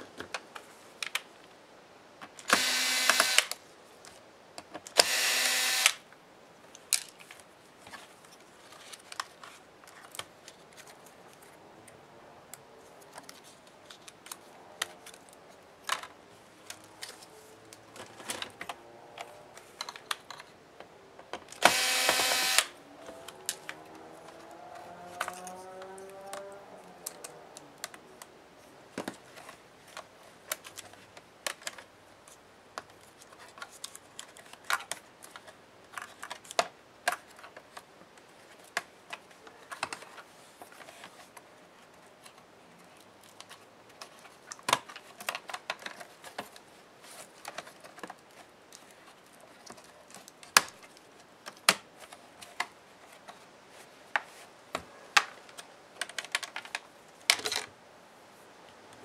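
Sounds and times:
laptop parts clicking: 0:02.2 - 0:06.0, 0:13.0 - 0:28.3, 0:29.0 - 0:41.5, 0:42.2 - 0:53.4, 0:54.2 - 0:57.7.

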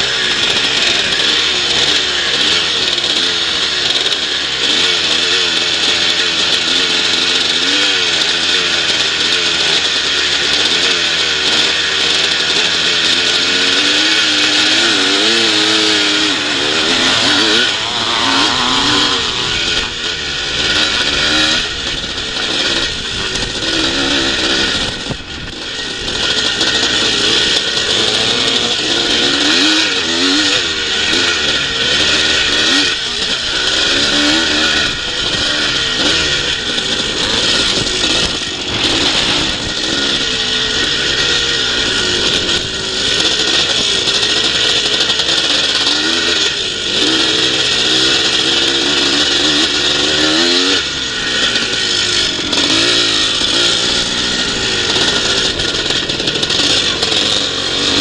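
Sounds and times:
motocross bike engine revving: 0:00.0 - 0:58.0
wind rush and track noise: 0:34.8 - 0:42.8.

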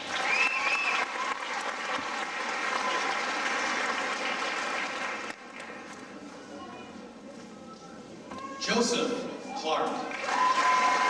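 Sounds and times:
audience applauding: 0:00.0 - 0:05.9, 0:10.1 - 0:11.0
high whoop: 0:10.2 - 0:11.0.

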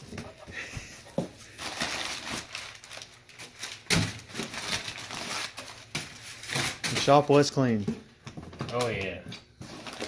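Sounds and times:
paper rustling and crinkling: 0:01.5 - 0:07.2, 0:08.6 - 0:10.0
sharp paper crackle: 0:01.6 - 0:07.1, 0:09.7 - 0:10.0.

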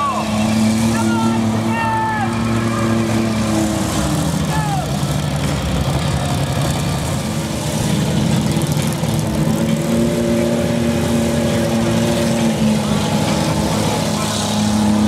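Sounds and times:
van engines running hard: 0:00.0 - 0:15.0.

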